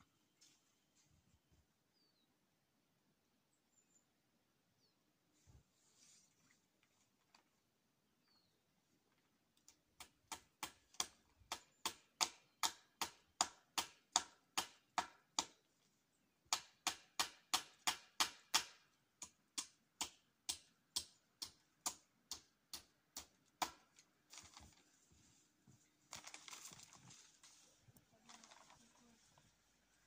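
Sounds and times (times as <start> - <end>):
hammer driving nails into wood: 10.0 - 15.6, 16.5 - 23.8.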